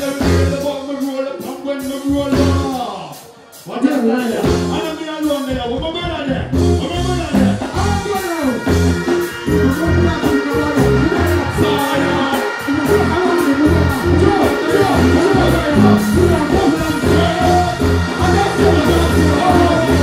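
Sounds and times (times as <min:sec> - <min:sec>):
dancehall music with heavy bass: 0:06.2 - 0:20.0.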